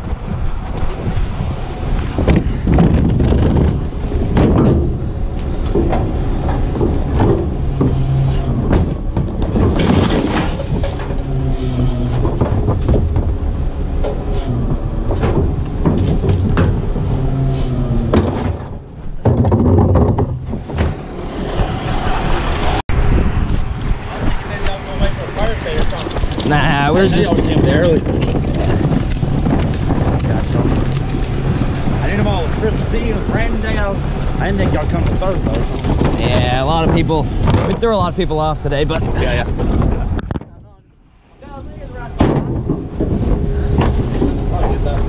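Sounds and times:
knocks and clanks of trash cart: 0:02.2 - 0:11.2, 0:12.1 - 0:13.4, 0:15.0 - 0:17.0, 0:18.0 - 0:21.8, 0:42.2 - 0:45.0.

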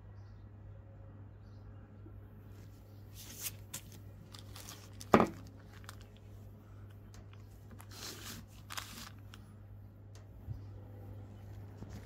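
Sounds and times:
plastic bags rustling: 0:03.1 - 0:06.5, 0:07.3 - 0:09.5.

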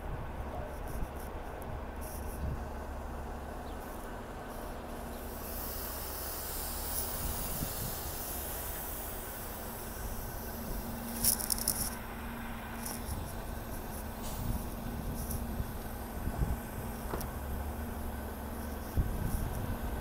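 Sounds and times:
bus engine idling: 0:00.0 - 0:20.0
air hissing: 0:04.5 - 0:20.0.

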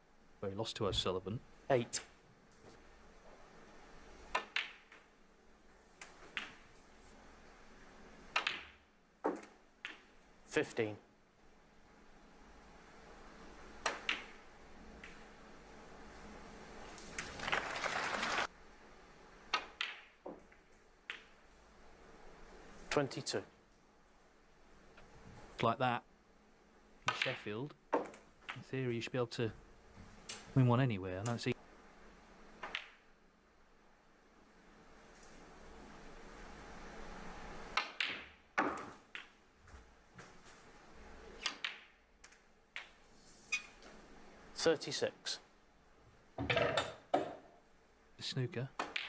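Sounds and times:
snooker balls clicking: 0:04.3 - 0:05.1, 0:06.0 - 0:06.8, 0:08.3 - 0:10.2, 0:13.8 - 0:15.3, 0:19.5 - 0:21.5, 0:27.1 - 0:28.7, 0:32.6 - 0:33.1, 0:37.7 - 0:39.4, 0:41.4 - 0:43.1, 0:48.8 - 0:49.0.

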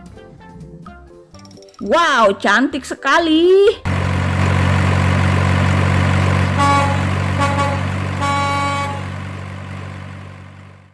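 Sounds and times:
truck engine running: 0:03.8 - 0:10.9
truck horn toots: 0:06.2 - 0:09.8.

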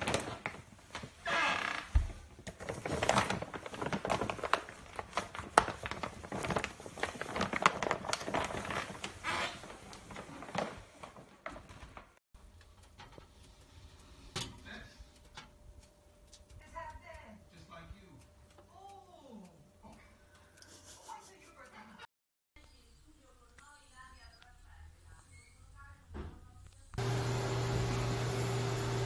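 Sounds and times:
plastic bag crinkling: 0:02.3 - 0:12.2.

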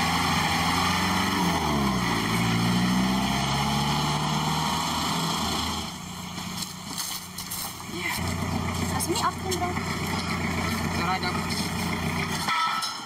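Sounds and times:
pickup truck engine running: 0:04.0 - 0:12.5.

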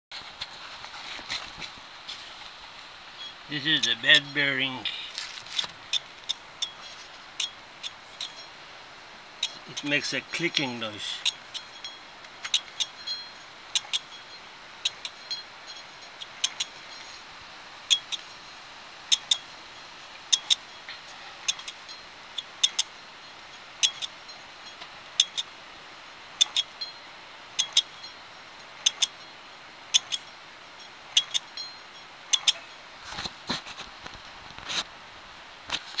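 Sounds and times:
wheel bearing metallic clicks: 0:05.5 - 0:08.5, 0:09.4 - 0:17.2, 0:17.9 - 0:18.4, 0:19.1 - 0:19.5, 0:20.2 - 0:25.5, 0:26.4 - 0:27.0, 0:27.6 - 0:29.3, 0:29.9 - 0:32.7.

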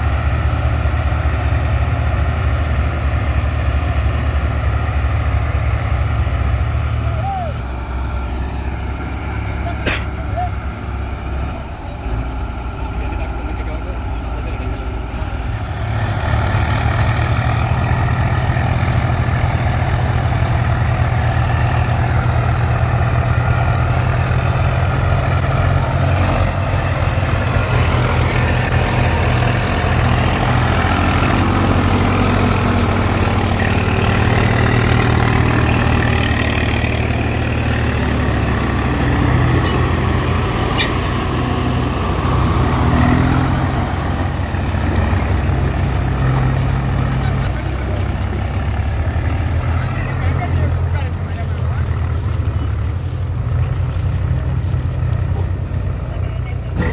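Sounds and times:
tractor diesel engine under load: 0:00.0 - 0:56.9.

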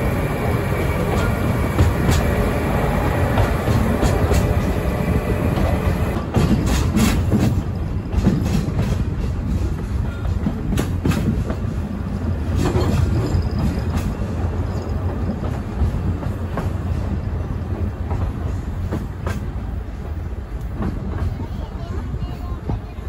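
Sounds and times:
train wheels rumbling on track: 0:00.0 - 0:23.0
wheels clicking over rail joints: 0:12.4 - 0:17.1.

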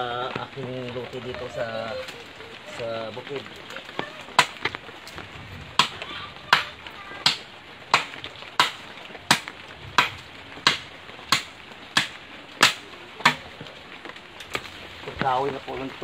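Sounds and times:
machete chopping branches: 0:04.4 - 0:05.2, 0:05.8 - 0:13.6.

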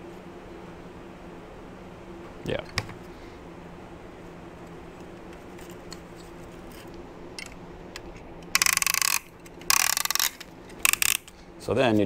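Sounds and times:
steady low hum: 0:00.0 - 0:12.0
rapid ratchet clicking: 0:08.5 - 0:11.3.

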